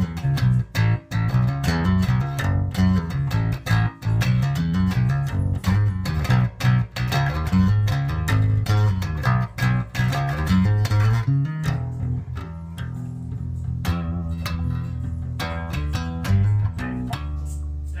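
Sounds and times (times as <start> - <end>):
electric bass notes: 0.0 - 18.0.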